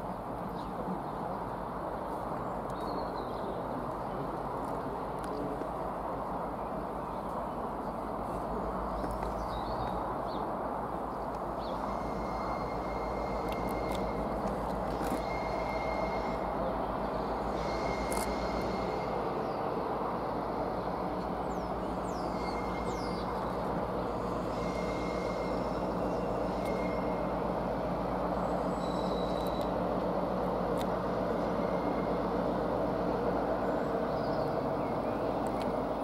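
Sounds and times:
diesel locomotive engine under load: 0:00.0 - 0:36.0
wheels squealing on track: 0:15.0 - 0:16.4.

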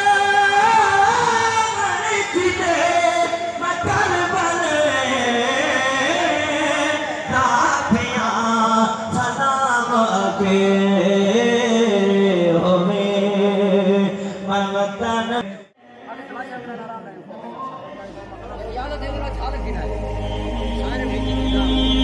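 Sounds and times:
person singing a devotional chant: 0:00.0 - 0:15.6.

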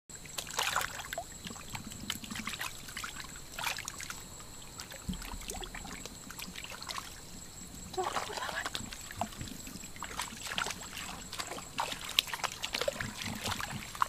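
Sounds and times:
water trickling and dripping: 0:00.1 - 0:14.0
hands splashing in water: 0:08.0 - 0:14.0.

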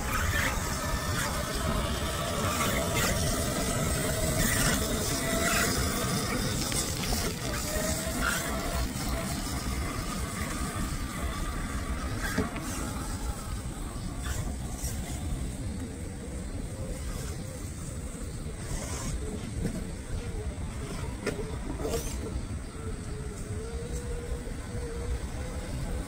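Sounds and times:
road traffic rumble: 0:00.0 - 0:26.0
toy car electric motor whine: 0:00.0 - 0:26.0.

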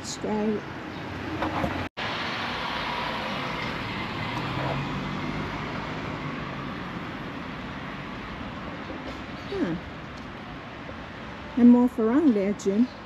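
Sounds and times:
car driving past: 0:01.1 - 0:08.4.

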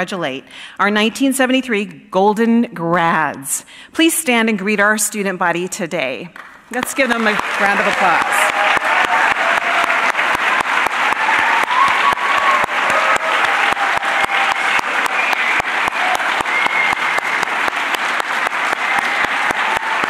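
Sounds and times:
audience applauding: 0:06.4 - 0:20.0.

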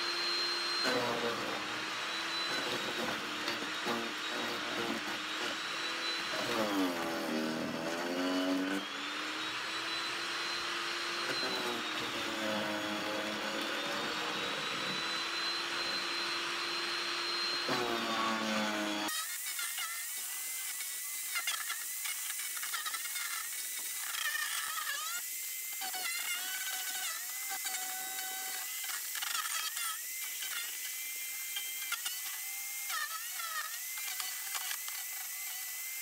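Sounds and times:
electric chipper shredder whining: 0:00.0 - 0:36.0.

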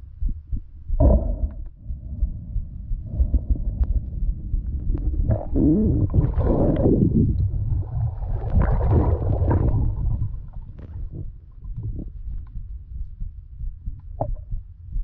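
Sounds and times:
muffled underwater water rumbling: 0:00.0 - 0:15.0
underwater gurgling: 0:01.0 - 0:12.4.

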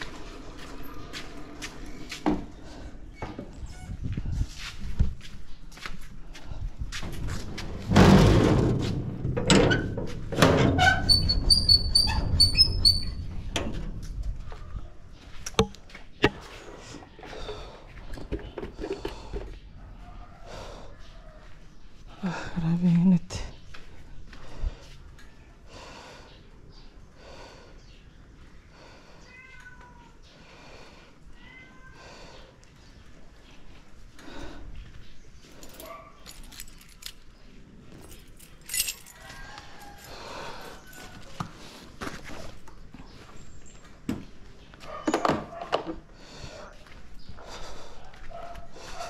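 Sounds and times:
steel gate scraping shut: 0:07.8 - 0:13.7
metal latch squeaking: 0:09.4 - 0:13.8
cat meowing: 0:29.2 - 0:30.2, 0:31.4 - 0:32.1.

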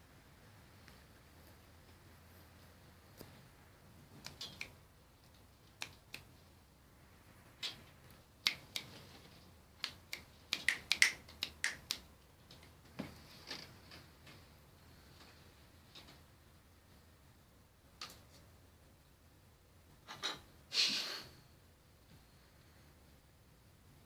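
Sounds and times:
sharp irregular clicks and taps: 0:09.8 - 0:12.7.

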